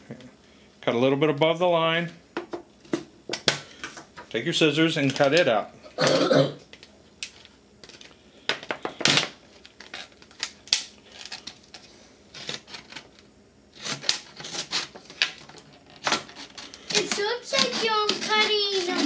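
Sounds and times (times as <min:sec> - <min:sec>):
scissors snipping plastic: 0:16.0 - 0:19.0.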